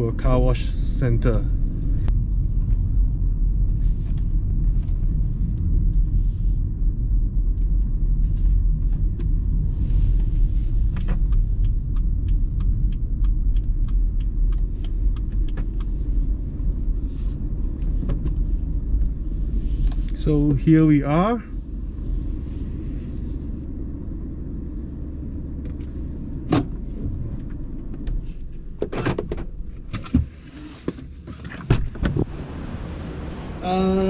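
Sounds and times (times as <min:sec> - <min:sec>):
car engine and road rumble: 0:00.0 - 0:34.0
light evenly spaced ticks: 0:09.8 - 0:17.9.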